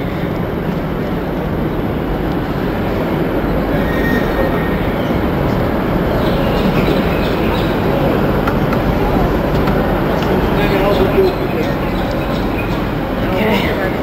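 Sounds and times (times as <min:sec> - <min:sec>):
rumble of trains: 0:00.0 - 0:14.0
faint high squeal: 0:03.7 - 0:04.9.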